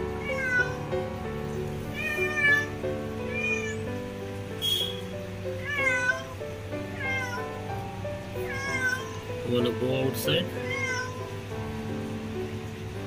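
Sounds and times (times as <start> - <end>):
background music: 0.0 - 13.0
cat meowing: 0.1 - 1.0, 1.8 - 4.0, 4.6 - 7.7, 8.3 - 9.3, 10.4 - 11.3.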